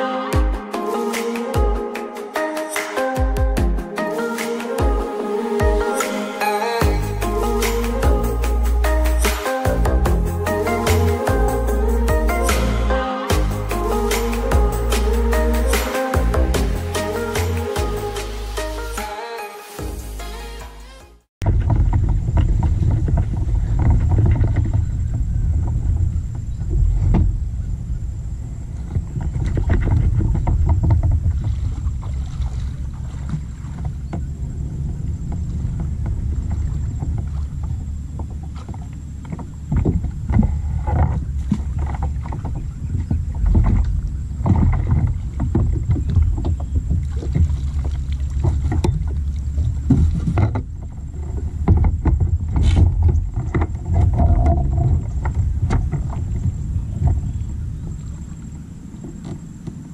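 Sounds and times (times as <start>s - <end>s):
steady low rumble: 6.8s - 18.8s, 21.4s - 59.9s
water lapping against plastic hull: 21.4s - 59.9s.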